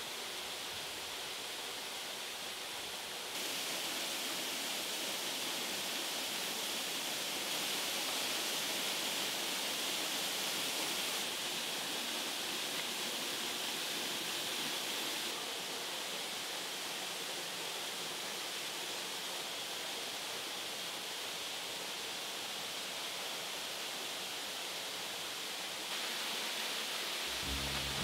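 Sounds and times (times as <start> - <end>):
waterfall rushing: 3.3 - 19.4, 25.2 - 28.0.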